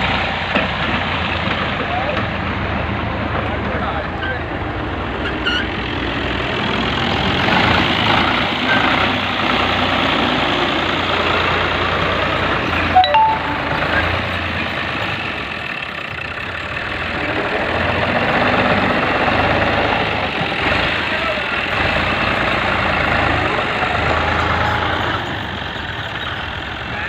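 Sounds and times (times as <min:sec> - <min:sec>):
diesel tractor engine running: 0:00.0 - 0:12.9, 0:13.7 - 0:27.0
short beep: 0:13.0 - 0:14.2.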